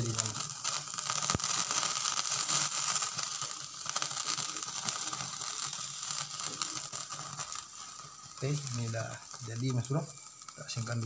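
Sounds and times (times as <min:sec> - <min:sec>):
meat sizzling and crackling: 0:00.0 - 0:11.0.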